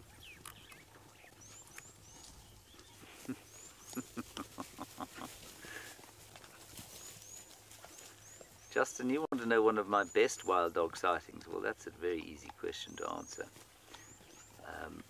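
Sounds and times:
wild dogs woofing: 0.0s - 8.8s.

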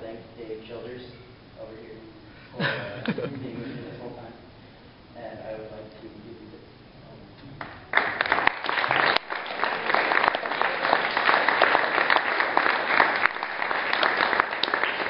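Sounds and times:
audience applauding: 7.6s - 15.0s.

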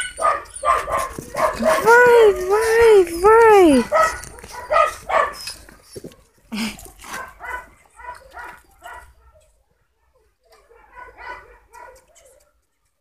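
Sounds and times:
puppies yipping and barking: 0.0s - 6.0s.

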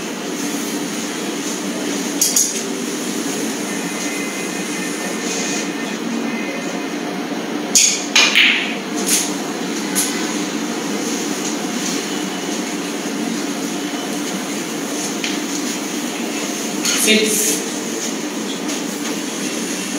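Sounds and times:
steady hall hum: 0.0s - 19.9s
cue striking ball: 7.8s - 8.8s.

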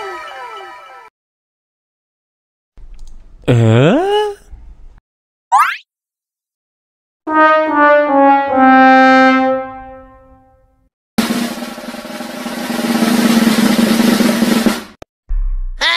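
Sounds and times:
sad trombone falling notes: 7.3s - 10.4s
snare drum roll: 11.2s - 15.0s.

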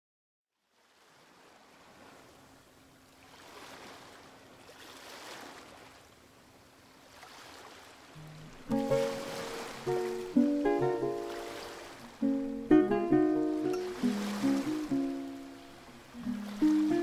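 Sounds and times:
waves washing: 0.8s - 17.0s
plucked guitar music: 8.2s - 17.0s.

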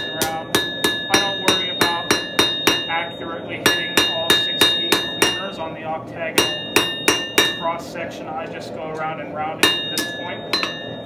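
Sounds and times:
hammer striking steel on anvil: 0.0s - 5.7s, 6.3s - 7.8s, 9.6s - 11.0s.

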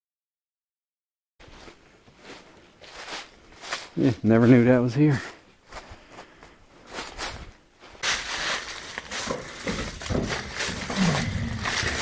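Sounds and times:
footsteps crunching through leaves: 1.4s - 4.6s, 6.8s - 12.0s.

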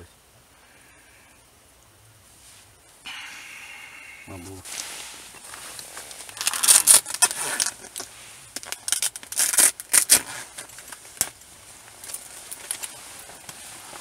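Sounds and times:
fabric rustling and crinkling: 4.6s - 14.0s.

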